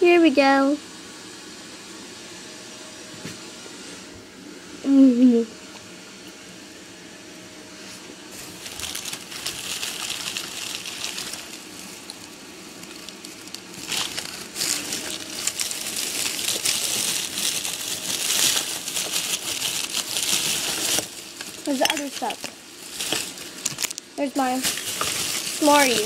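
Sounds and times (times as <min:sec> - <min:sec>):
plastic wrappers crinkling: 0:08.4 - 0:26.0.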